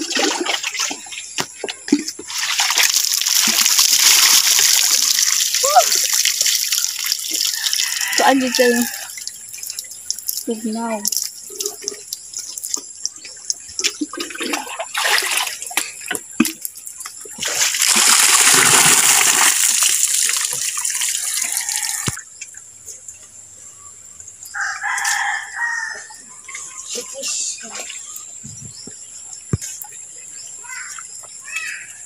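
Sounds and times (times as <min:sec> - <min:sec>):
water splashing from pail: 0:00.0 - 0:22.3, 0:25.9 - 0:29.0
rooster crowing: 0:07.5 - 0:09.2, 0:21.1 - 0:22.2, 0:24.5 - 0:26.2.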